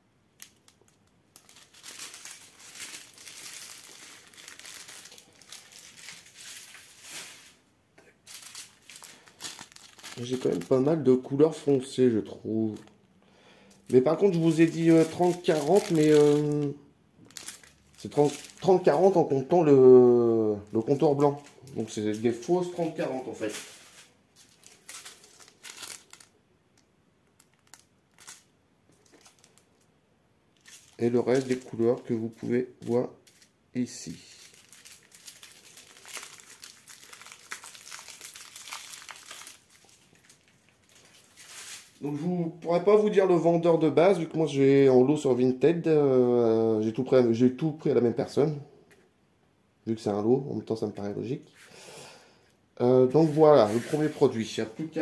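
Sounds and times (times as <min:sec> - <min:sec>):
plastic sachets crinkling: 0:00.3 - 0:12.0, 0:12.7 - 0:13.0, 0:13.6 - 0:19.6, 0:20.5 - 0:29.9, 0:30.5 - 0:42.2, 0:53.1 - 0:55.0.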